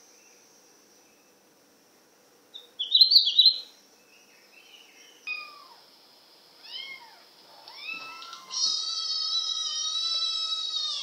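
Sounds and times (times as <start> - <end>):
high bird chirps: 2.5 - 5.8
cat meowing: 6.6 - 11.0.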